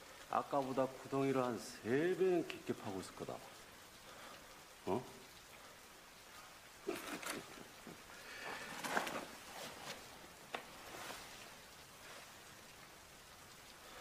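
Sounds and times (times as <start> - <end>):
cloth and leather rustling: 6.9 - 12.6
small clicks and knocks: 9.9 - 10.8.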